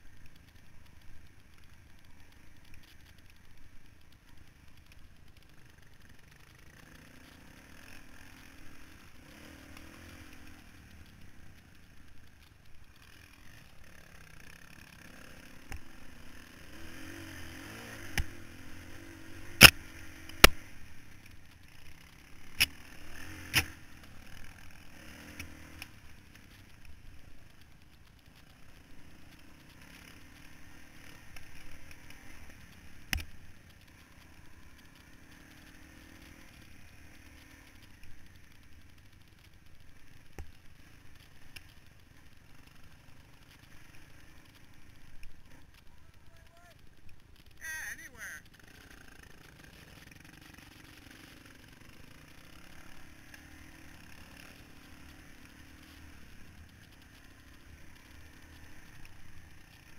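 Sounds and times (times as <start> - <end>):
dirt bike engine revving: 13.8 - 20.8, 22.0 - 26.0.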